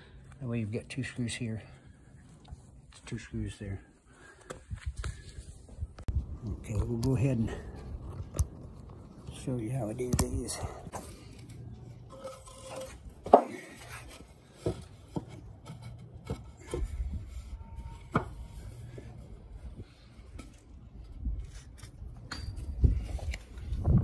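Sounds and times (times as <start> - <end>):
wind rumble on microphone: 4.6 - 9.5, 16.8 - 18.1, 19.2 - 24.0.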